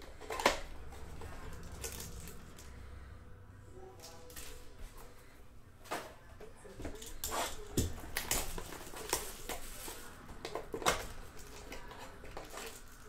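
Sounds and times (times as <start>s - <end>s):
cardboard and wrapper crinkling: 0.0s - 2.8s, 6.8s - 13.0s.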